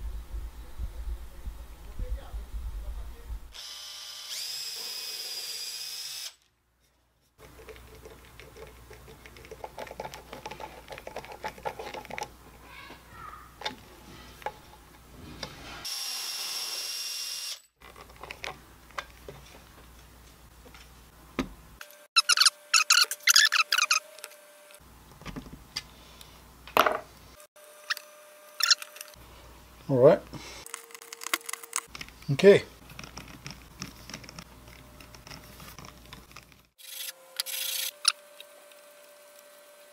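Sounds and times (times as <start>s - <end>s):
cordless drill running: 3.5s - 6.4s
screwdriver clicking and scraping: 22.2s - 24.8s, 27.8s - 29.2s, 30.6s - 38.8s.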